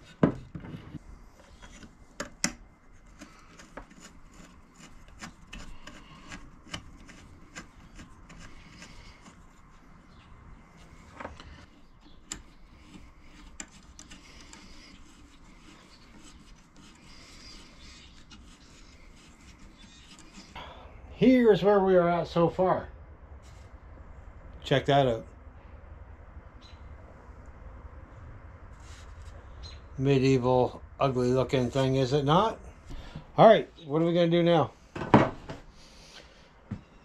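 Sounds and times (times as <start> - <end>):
metal scraping against wood: 0.0 - 20.6.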